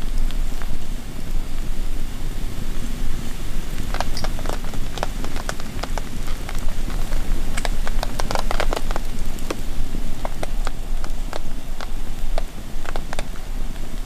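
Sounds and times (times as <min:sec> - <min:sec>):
campfire crackling: 0:00.0 - 0:14.0
low rumble of flames: 0:00.0 - 0:14.0
sharp pops of fire: 0:03.8 - 0:13.4.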